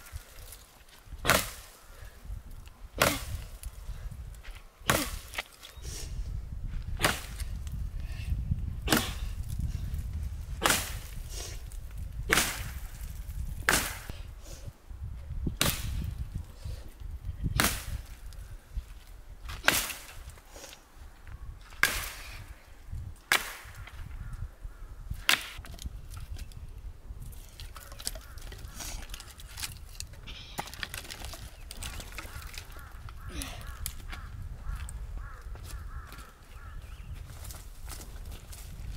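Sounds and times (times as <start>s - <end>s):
axe chopping wood: 1.2s - 1.7s, 3.0s - 3.6s, 4.9s - 5.5s, 7.0s - 7.5s, 8.9s - 9.3s, 10.6s - 11.2s, 12.3s - 12.8s, 13.6s - 14.1s, 15.6s - 16.1s, 17.6s - 18.1s, 19.5s - 20.2s, 21.8s - 22.3s, 23.2s - 23.9s, 25.2s - 25.8s.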